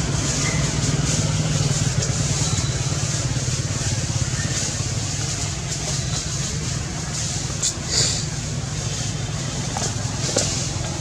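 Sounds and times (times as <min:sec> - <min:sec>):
even hiss: 0:00.0 - 0:11.0.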